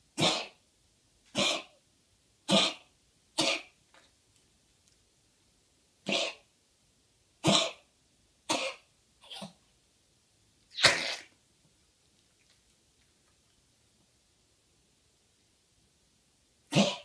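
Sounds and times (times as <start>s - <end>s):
dog coughing: 0.2s - 0.6s, 1.3s - 1.8s, 2.5s - 3.8s, 6.0s - 6.5s, 7.4s - 7.9s, 8.5s - 9.6s, 10.8s - 11.3s, 16.7s - 17.0s.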